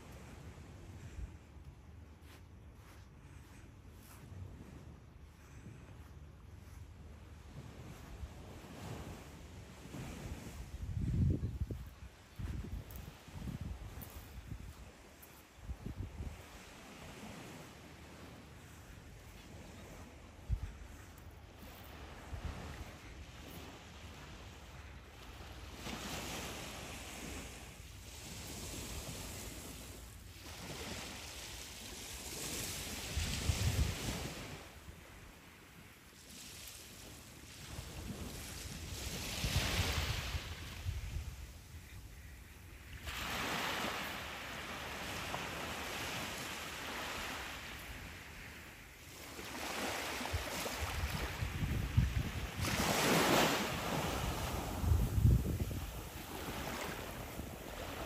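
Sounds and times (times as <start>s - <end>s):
small waves washing on sand: 0.0s - 58.0s
wind rumble on microphone: 0.0s - 58.0s.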